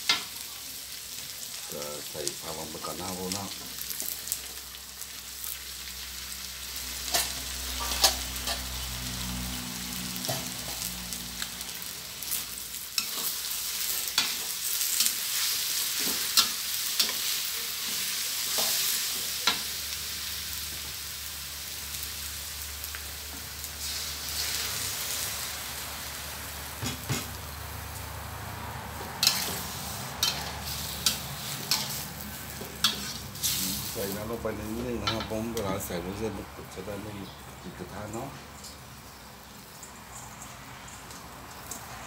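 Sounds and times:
vegetables sizzling in a wok: 0.0 - 42.0
metal ladle scraping a wok: 7.0 - 8.9, 29.0 - 34.0.

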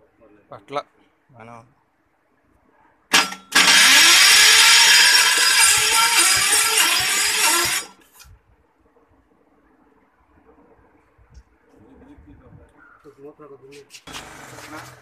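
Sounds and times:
diesel engine running clattery: 3.2 - 8.0, 14.1 - 15.0.

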